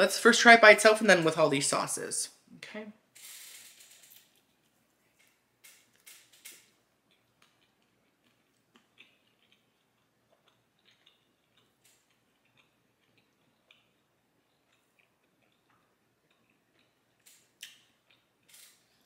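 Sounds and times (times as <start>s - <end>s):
crunching crisp flatbread: 3.6s - 19.0s.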